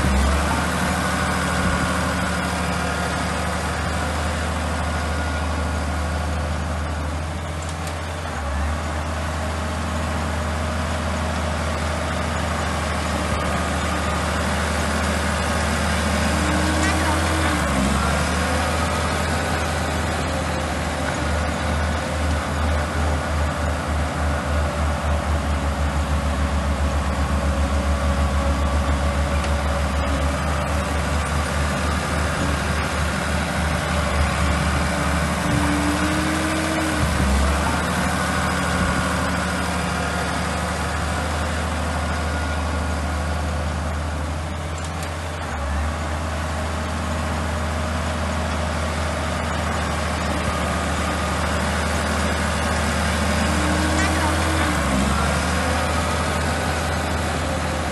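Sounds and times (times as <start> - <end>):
bulldozer diesel engine throbbing: 0.0 - 57.9
bulldozer pushing earth and gravel: 0.0 - 57.9.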